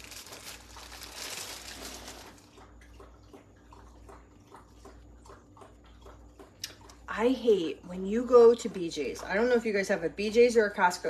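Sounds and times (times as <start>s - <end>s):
plastic bag crinkling: 0.0s - 2.6s.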